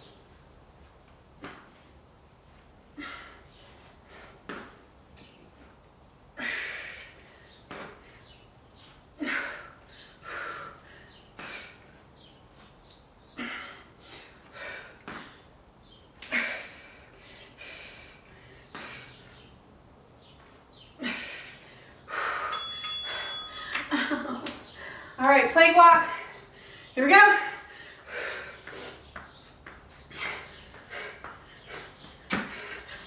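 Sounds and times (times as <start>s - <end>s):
woman breathing hard: 2.9s - 4.5s, 6.3s - 8.4s, 9.2s - 12.1s, 13.3s - 15.5s, 16.2s - 19.4s, 21.0s - 23.8s, 24.6s - 25.2s, 26.2s - 27.0s, 27.6s - 29.2s, 30.0s - 33.0s.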